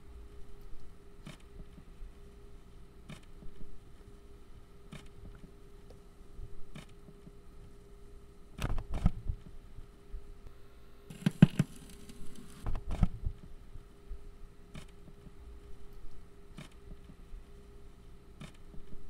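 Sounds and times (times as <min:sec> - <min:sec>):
cassette stereo knobs clicking: 0:11.1 - 0:13.2.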